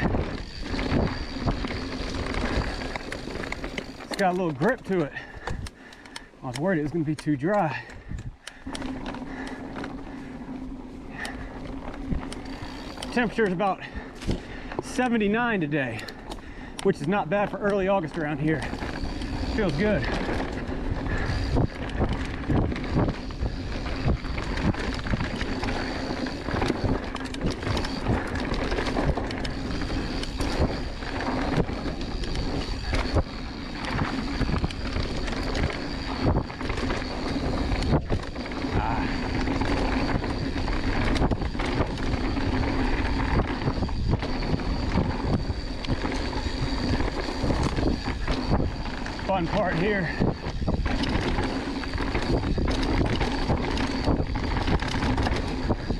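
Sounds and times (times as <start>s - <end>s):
wind noise on microphone: 0.0s - 4.1s, 18.5s - 55.9s
bike rattling and knocking: 0.0s - 55.9s
bike tyres rolling over dirt: 0.0s - 55.9s.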